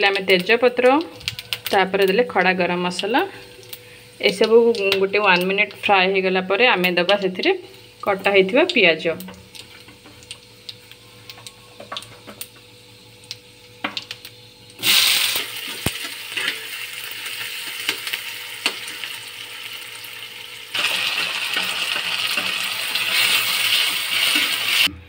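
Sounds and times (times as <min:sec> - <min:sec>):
spices crackling in hot oil: 0:00.0 - 0:24.9
onions sizzling in oil: 0:09.2 - 0:24.9.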